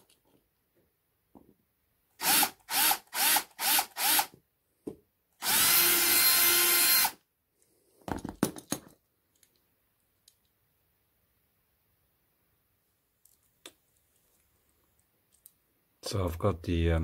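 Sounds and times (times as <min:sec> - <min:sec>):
cordless drill drilling: 0:02.2 - 0:04.4, 0:05.4 - 0:07.2.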